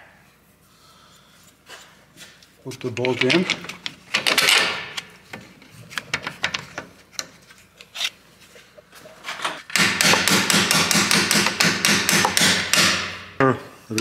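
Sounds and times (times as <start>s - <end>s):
hammer striking metal bolt: 9.7s - 13.3s.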